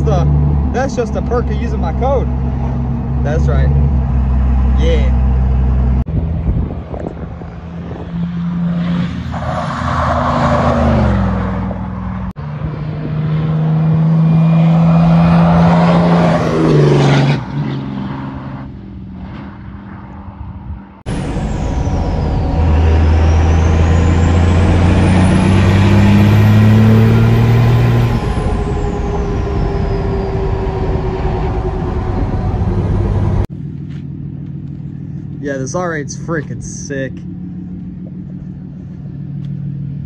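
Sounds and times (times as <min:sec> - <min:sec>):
diesel truck accelerating: 0:00.0 - 0:40.0
diesel engine inside cab: 0:21.0 - 0:36.1.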